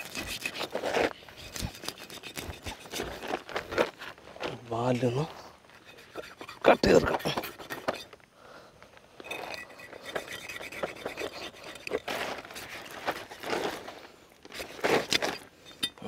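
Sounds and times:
knife sawing through fish: 0.0 - 0.8, 1.4 - 3.4, 5.8 - 8.1, 9.8 - 13.6.

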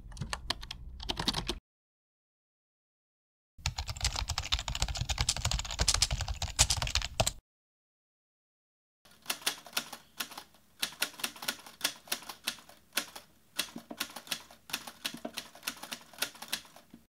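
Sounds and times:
keyboard typing clicks: 0.0 - 1.6.

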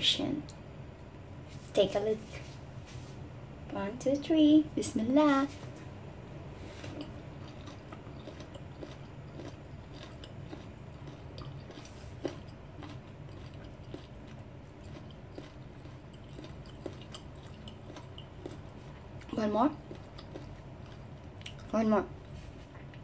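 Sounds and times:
faint low hum: 0.0 - 23.0
person chewing crunchy food: 6.6 - 23.0.

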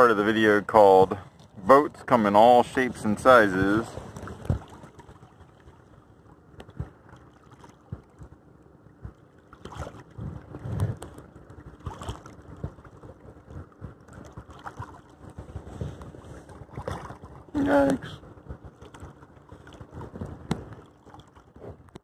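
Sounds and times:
water lapping against hull: 0.0 - 22.0
wind buffeting microphone: 10.1 - 11.2.

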